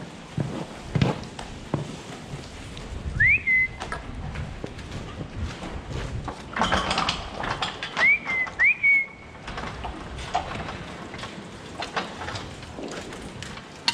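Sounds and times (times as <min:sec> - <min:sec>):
cows clattering on slatted floor: 0:00.5 - 0:13.9
person whistling: 0:03.1 - 0:03.8, 0:08.0 - 0:09.3.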